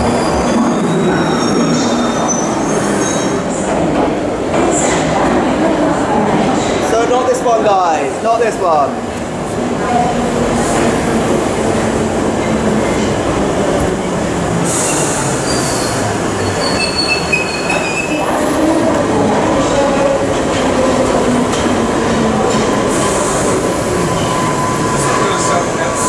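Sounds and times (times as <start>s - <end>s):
train wheels rumbling on rails: 9.0s - 26.0s
high-pitched wheel squeal: 14.9s - 18.2s.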